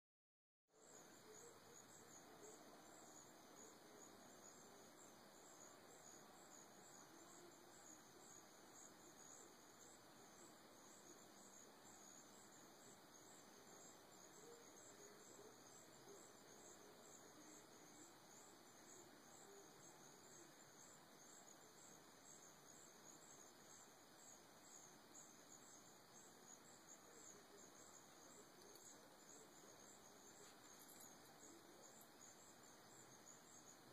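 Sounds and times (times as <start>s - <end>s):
insects chirping: 0.8s - 33.9s.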